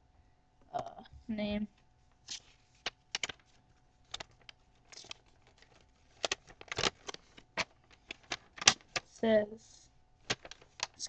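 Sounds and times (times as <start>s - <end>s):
paper rustling and crinkling: 2.1s - 9.2s, 10.2s - 11.0s.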